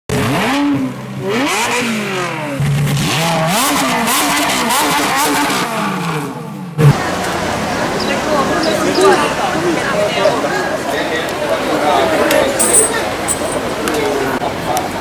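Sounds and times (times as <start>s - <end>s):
car engine revving: 0.1s - 8.5s
busy background sound: 6.4s - 15.0s.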